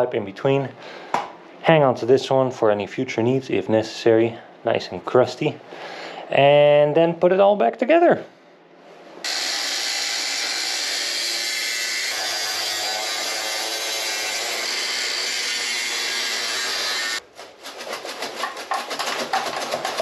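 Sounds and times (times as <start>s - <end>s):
angle grinder cutting metal: 9.2s - 17.2s
rapid clattering and rattling: 17.6s - 20.0s.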